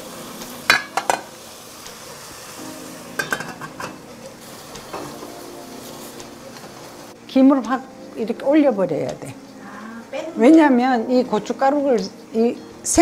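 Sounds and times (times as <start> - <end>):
sprouts sizzling: 0.0 - 13.0
pot lid clinking: 0.7 - 1.3, 3.2 - 4.0.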